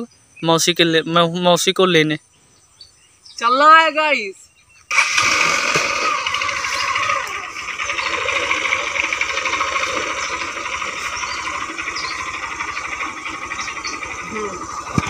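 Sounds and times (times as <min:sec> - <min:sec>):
motorcycle engine idling: 0:04.9 - 0:15.0.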